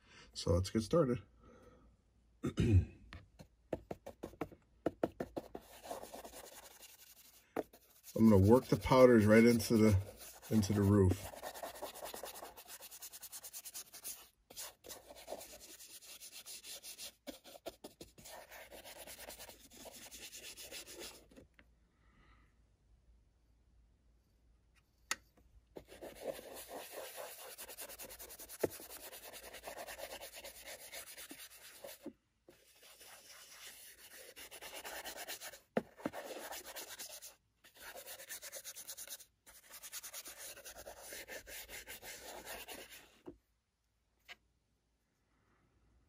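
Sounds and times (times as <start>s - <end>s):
stiff brush scrubbing paper: 5.0s - 21.3s, 25.8s - 43.1s.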